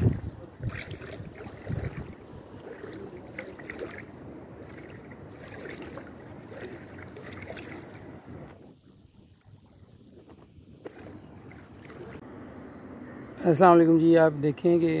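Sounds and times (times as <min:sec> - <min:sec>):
floodwater sloshing: 0:00.0 - 0:08.6, 0:09.4 - 0:12.2
wind noise on microphone: 0:00.0 - 0:12.2.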